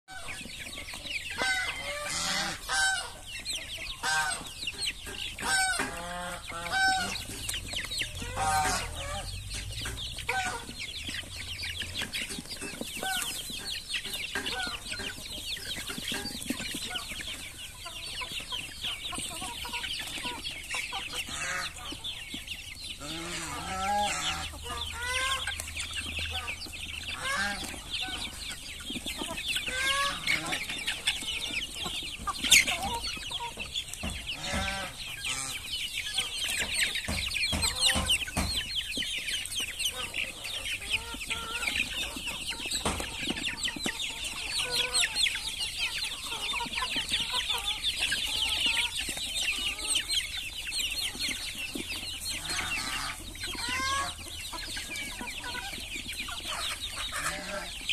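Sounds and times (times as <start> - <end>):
chicks clucking and peeping: 0.0 - 57.9.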